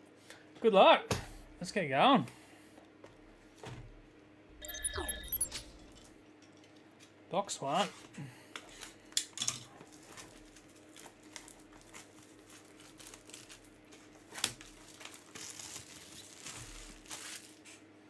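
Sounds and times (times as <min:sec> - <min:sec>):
plastic shrink-wrap crinkling: 0:09.9 - 0:17.8.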